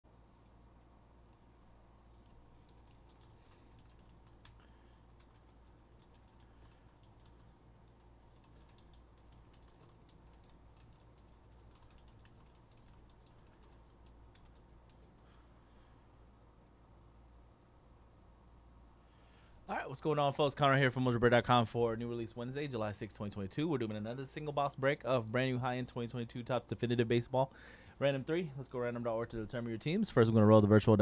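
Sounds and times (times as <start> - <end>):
low steady hum: 0.1 - 31.0
keyboard typing clicks: 2.0 - 4.6, 5.2 - 15.1.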